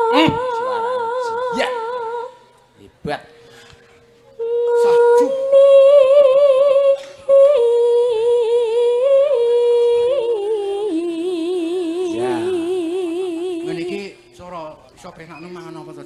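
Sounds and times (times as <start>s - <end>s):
woman singing with vibrato: 0.0s - 2.5s, 4.4s - 14.0s
singer breathing: 3.4s - 4.2s.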